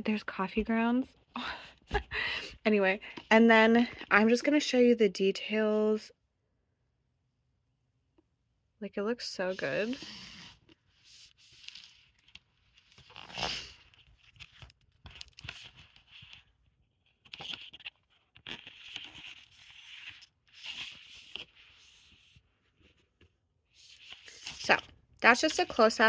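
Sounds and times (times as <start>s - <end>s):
book cover and pages rustling: 9.3s - 26.0s.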